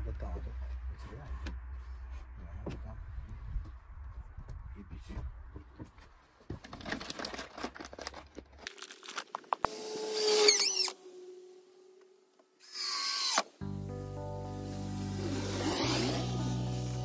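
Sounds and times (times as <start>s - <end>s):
cordless drill driving screws: 9.7s - 11.0s, 12.6s - 13.5s
background music: 13.6s - 17.0s.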